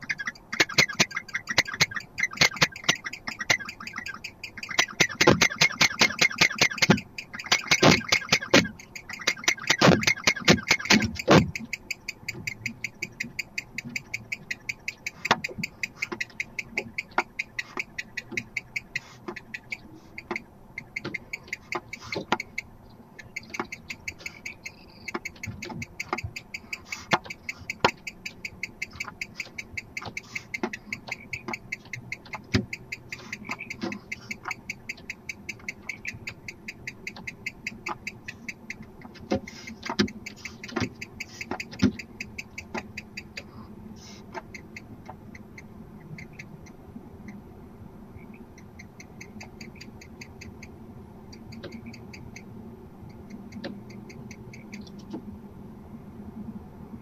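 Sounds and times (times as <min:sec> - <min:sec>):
barn owls clicking: 0:00.0 - 0:47.4, 0:48.2 - 0:55.3.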